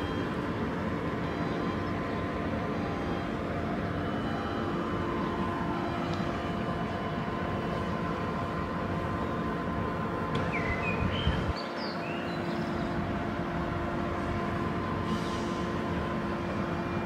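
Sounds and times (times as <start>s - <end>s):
train equipment hum: 0.0s - 17.0s
birds chirping: 10.4s - 13.1s.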